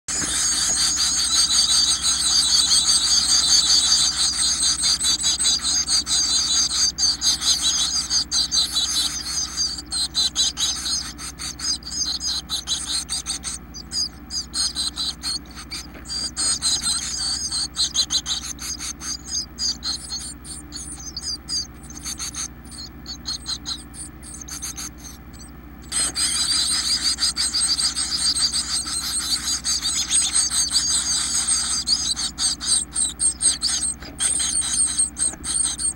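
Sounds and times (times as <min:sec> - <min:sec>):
nestling birds chirping: 0:00.1 - 0:35.9.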